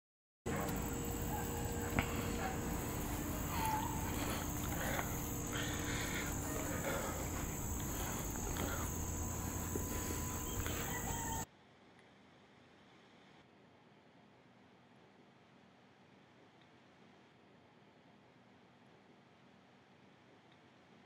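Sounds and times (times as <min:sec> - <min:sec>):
insect chorus buzzing: 0:00.5 - 0:11.5
rustles: 0:00.6 - 0:11.4
faint chirps: 0:00.6 - 0:11.5.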